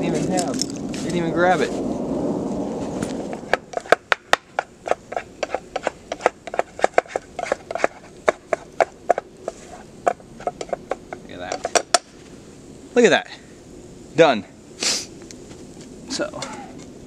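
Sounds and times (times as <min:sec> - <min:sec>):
utensil scraping a pan: 0:03.5 - 0:11.9.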